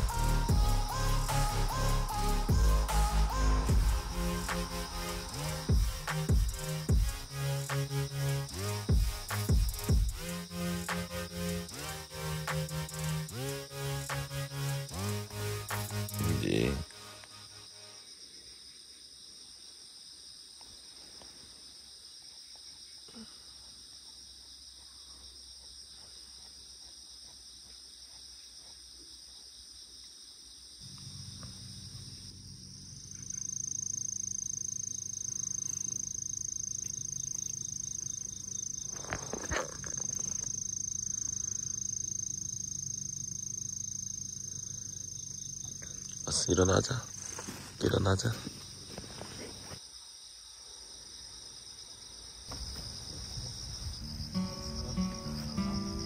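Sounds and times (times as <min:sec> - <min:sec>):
high-pitched insect drone: 0:00.0 - 0:19.0, 0:30.6 - 0:49.8, 0:52.1 - 0:56.0
insect chorus: 0:00.0 - 0:56.0.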